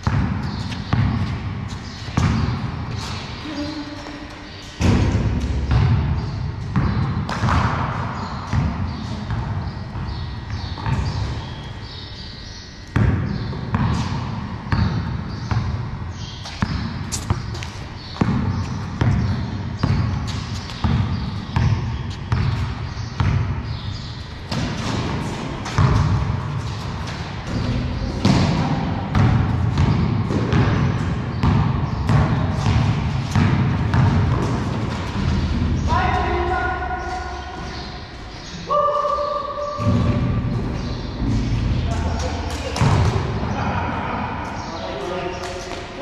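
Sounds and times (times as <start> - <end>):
basketball bouncing on concrete: 0.0 - 2.7, 4.8 - 11.4, 12.9 - 23.8, 24.5 - 35.8.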